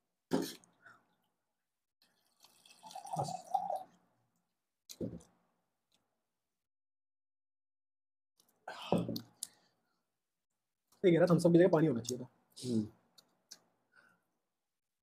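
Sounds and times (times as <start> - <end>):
water pouring into mug: 2.1 - 4.0.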